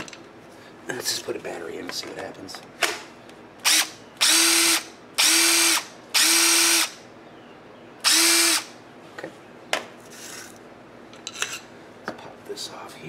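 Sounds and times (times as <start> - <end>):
impact wrench motor whine: 3.6 - 7.0, 8.0 - 8.7.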